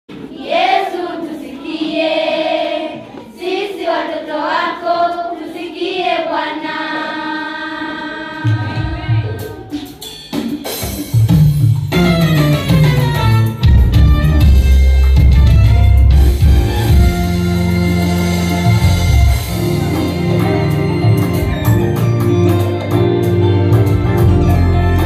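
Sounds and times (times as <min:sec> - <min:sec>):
drum hits: 0:08.4 - 0:23.1
deep bass line: 0:12.0 - 0:25.0.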